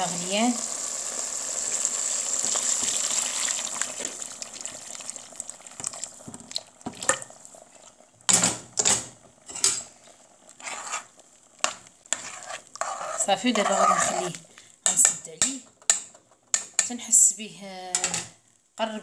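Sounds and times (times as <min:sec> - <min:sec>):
water hissing and splashing in pot: 0:00.0 - 0:14.8.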